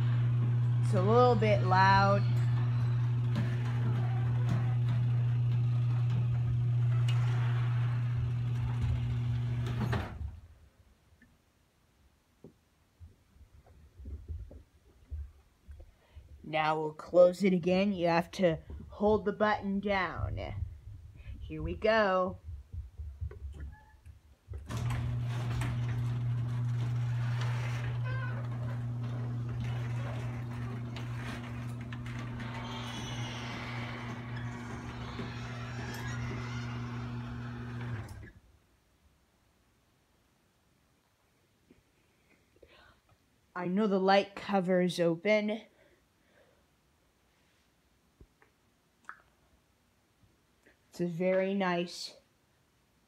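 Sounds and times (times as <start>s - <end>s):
garage door opener motor hum: 0.0s - 10.5s, 24.5s - 38.4s
garage door clunk: 0.2s - 10.4s, 24.6s - 38.4s.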